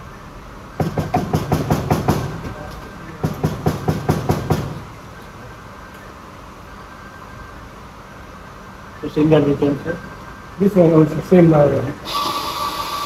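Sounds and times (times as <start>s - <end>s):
hard knocks: 0.8s - 4.9s.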